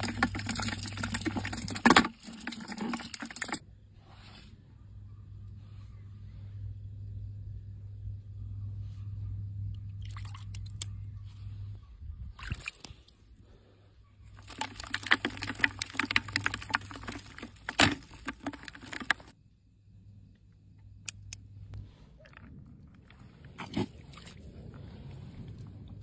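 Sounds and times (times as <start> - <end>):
eels sloshing in a bucket: 0.0 - 3.6, 14.3 - 19.3.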